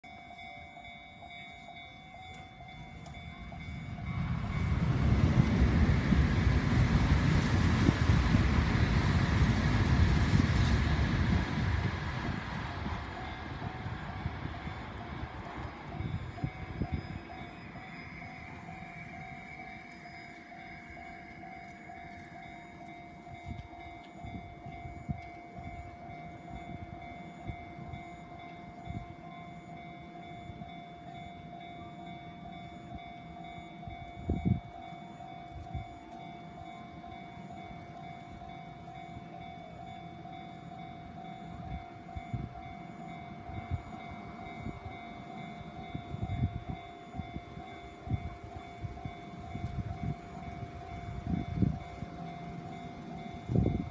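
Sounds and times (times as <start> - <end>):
level crossing warning bell: 0.0 - 53.9.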